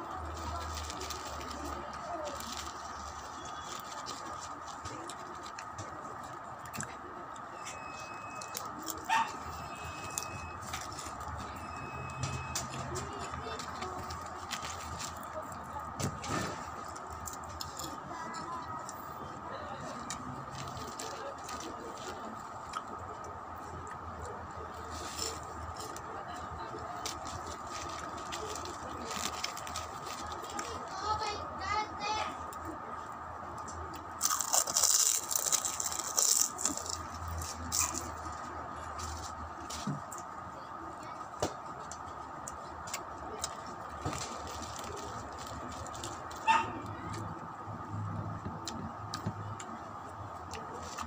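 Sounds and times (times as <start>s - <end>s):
crisp snacks rustling: 0.0s - 6.9s, 7.8s - 19.1s, 19.9s - 23.0s, 24.7s - 31.4s, 34.0s - 39.9s, 43.3s - 46.4s
plastic bag crinkling: 0.1s - 5.6s, 26.9s - 31.2s, 34.2s - 38.2s, 44.0s - 46.4s.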